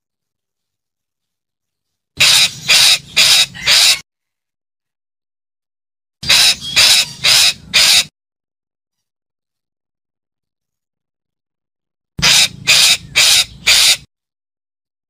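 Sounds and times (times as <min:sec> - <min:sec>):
parakeet screechy calls: 0:02.2 - 0:04.0, 0:06.2 - 0:08.1, 0:12.2 - 0:14.1.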